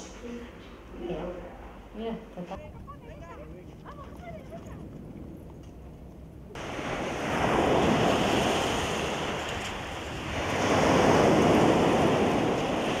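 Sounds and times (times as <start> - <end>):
waves breaking on pebble beach: 6.6 - 13.0.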